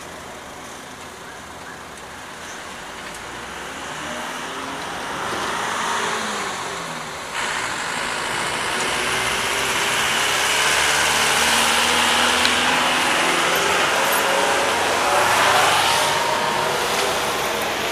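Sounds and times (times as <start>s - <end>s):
road vehicles passing: 0.0s - 17.9s.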